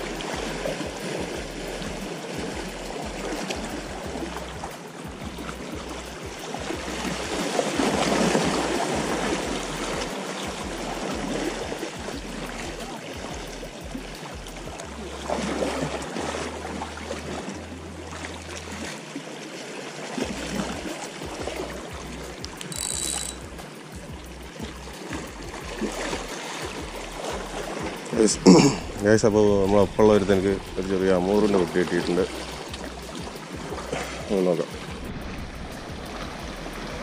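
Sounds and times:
waves splashing against rocks: 0.0s - 13.6s
brief high-pitched tone: 22.6s - 23.4s.

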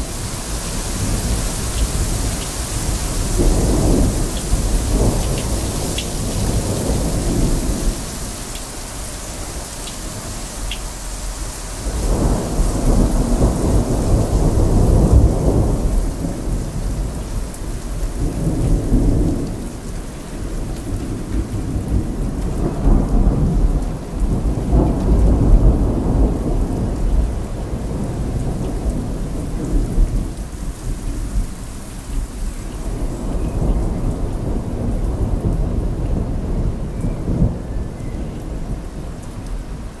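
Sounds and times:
thunder rumbling: 0.0s - 8.4s, 11.2s - 31.6s
heavy rain: 0.0s - 40.0s.

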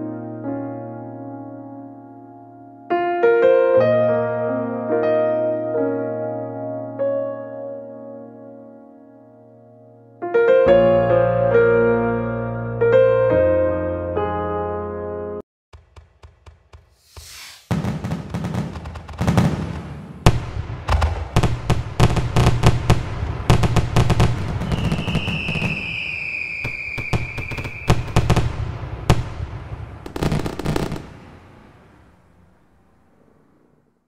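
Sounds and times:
fireworks cracks and bangs: 15.8s - 32.8s
firework whistling: 17.0s - 20.3s, 23.5s - 33.5s.

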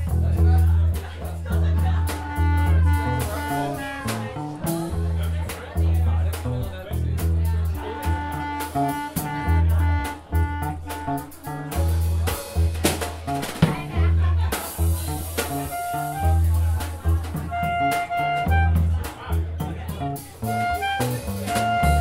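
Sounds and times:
drums and cymbals: 0.0s - 22.0s
electric bass guitar: 0.0s - 22.0s
woodwind melody: 1.7s - 5.3s, 7.6s - 12.7s, 14.8s - 19.4s, 20.2s - 22.0s.

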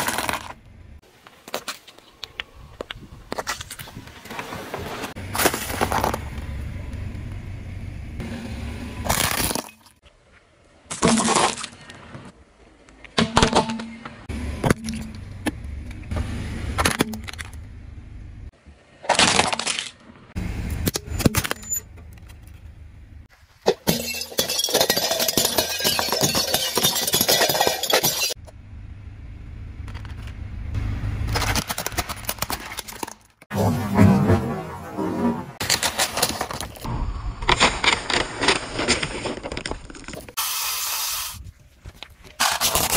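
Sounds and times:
car tyre crushing plastic objects: 0.0s - 0.6s, 5.0s - 6.6s, 9.0s - 10.0s, 10.8s - 12.3s, 16.8s - 17.7s, 18.9s - 22.8s, 31.2s - 33.5s, 35.6s - 40.4s, 41.8s - 42.9s
cracking and splintering: 35.6s - 40.4s.

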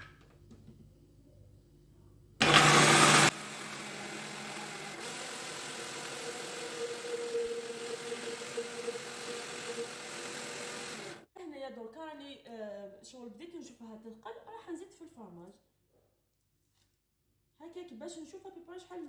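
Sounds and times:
blender running: 2.4s - 11.2s.

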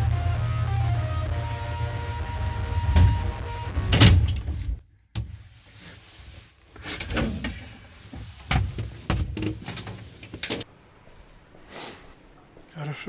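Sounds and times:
scraping and rustling: 4.4s - 10.7s.

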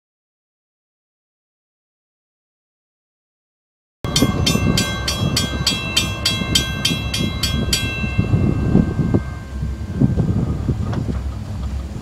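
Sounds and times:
crossing warning bell ringing: 4.0s - 11.8s
low rumble: 4.1s - 12.0s
wind on microphone: 4.1s - 12.0s.

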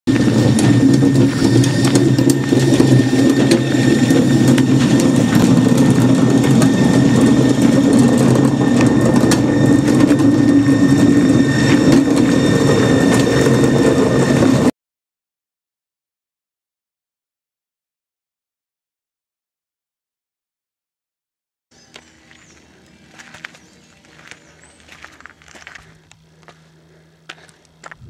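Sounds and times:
electric train rumbling past: 0.1s - 14.7s.

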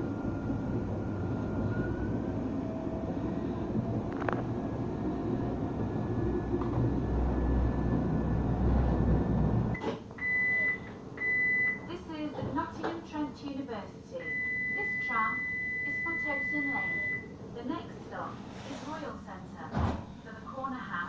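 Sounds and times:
tram running rumble: 0.0s - 9.8s.

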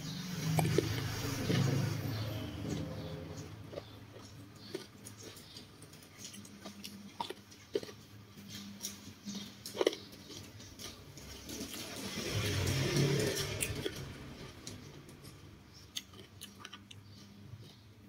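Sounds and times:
chewing with full mouth: 0.3s - 18.0s
small clicks and crinkles: 3.7s - 15.4s.

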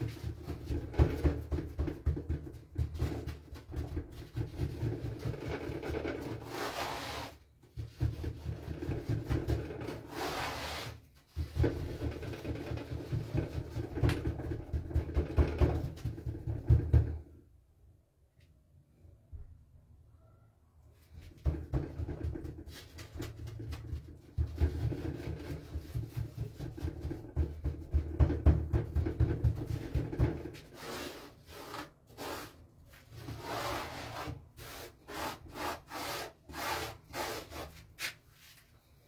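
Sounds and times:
dough kneading thuds: 0.0s - 6.8s, 7.4s - 10.2s, 10.8s - 17.4s, 21.1s - 33.5s.

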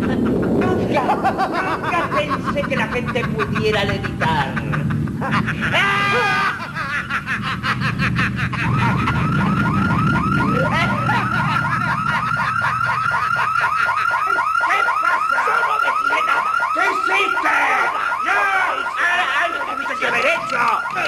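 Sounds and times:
low rumble: 0.0s - 13.8s
electronic alarm warbling: 0.0s - 21.0s.

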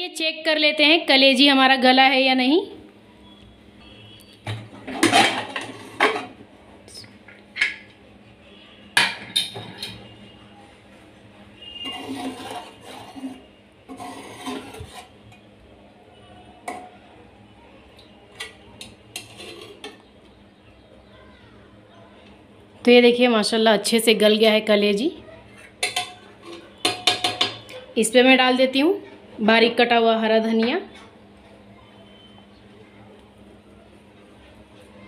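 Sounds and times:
metal pot lid clanking: 4.9s - 6.4s, 25.8s - 27.6s
spoon scraping pot: 11.6s - 15.4s, 18.4s - 20.1s, 25.6s - 27.7s.

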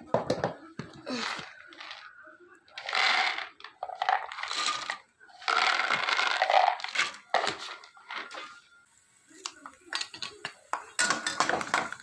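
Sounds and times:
peanuts rattling in metal pan: 2.8s - 8.3s.

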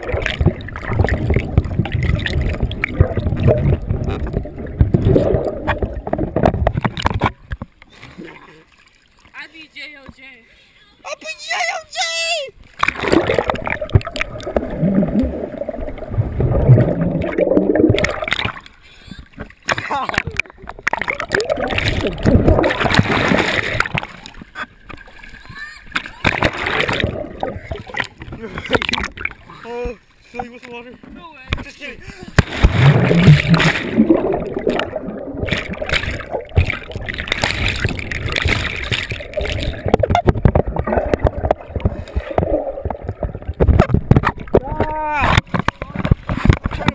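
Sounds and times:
water gurgling underwater: 0.0s - 8.6s, 12.8s - 29.5s, 32.4s - 46.9s
muffled voice through water: 25.3s - 32.4s, 44.4s - 46.9s.

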